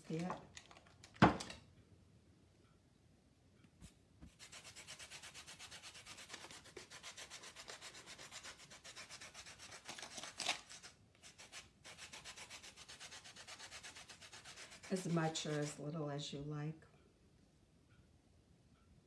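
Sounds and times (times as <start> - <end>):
lemon scraping on grater: 4.4 - 15.8.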